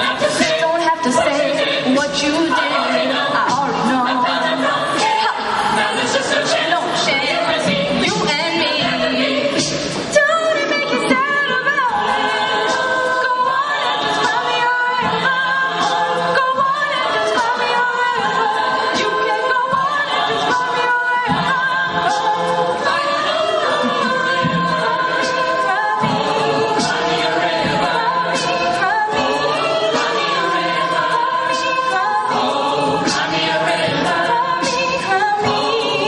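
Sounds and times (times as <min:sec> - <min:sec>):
a cappella group singing: 0:00.0 - 0:36.0
steady beat: 0:14.2 - 0:36.0.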